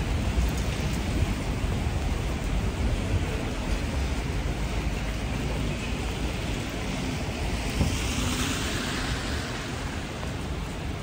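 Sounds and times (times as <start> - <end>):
low rumble of traffic: 0.0 - 11.0
tyres hissing on wet road: 0.0 - 11.0.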